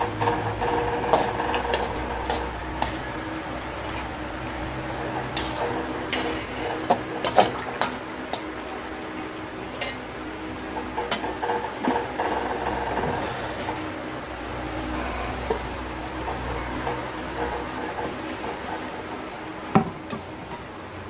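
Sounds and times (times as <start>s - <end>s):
steady low hum: 0.0s - 21.0s
metal spatula scraping wok: 4.8s - 6.6s.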